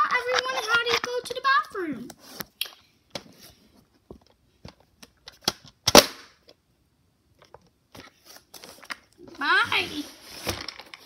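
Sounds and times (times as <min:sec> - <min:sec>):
plastic toys clicking and knocking: 0:00.0 - 0:01.5.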